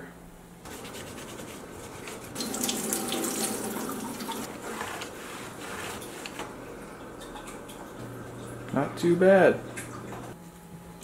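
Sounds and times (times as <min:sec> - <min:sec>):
tap water running into sink: 0:02.4 - 0:04.5.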